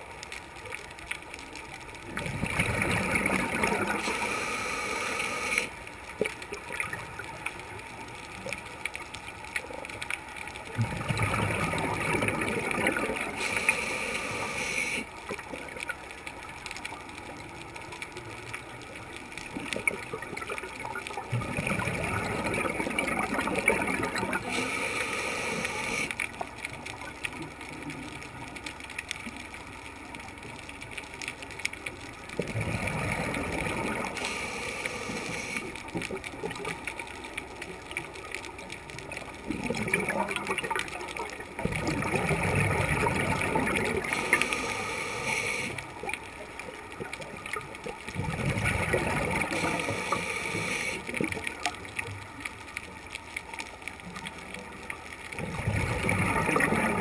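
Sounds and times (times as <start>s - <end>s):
scuba regulator bubbly exhalations: 2.1s - 5.7s, 10.7s - 15.7s, 19.6s - 26.2s, 32.4s - 36.7s, 39.4s - 46.2s, 47.0s - 51.8s, 55.3s - 57.0s.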